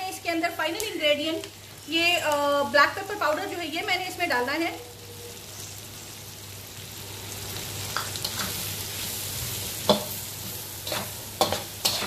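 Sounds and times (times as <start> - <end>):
meat and vegetables sizzling: 0.0 - 12.0
metal spatula scraping pan: 8.0 - 8.7, 9.8 - 12.0.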